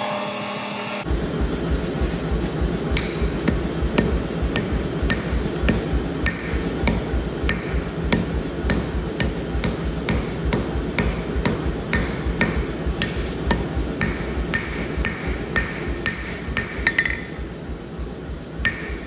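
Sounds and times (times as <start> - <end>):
low hum: 1.0 - 19.0
hammer clanking on anvil: 3.0 - 17.4, 18.7 - 19.0.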